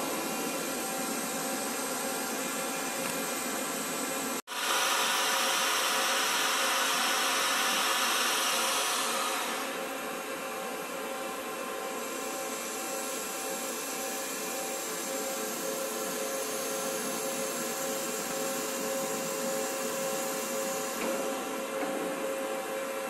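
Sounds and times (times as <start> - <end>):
boring mill hum and whine: 0.0 - 23.0
hiss: 4.5 - 9.9, 12.1 - 21.6.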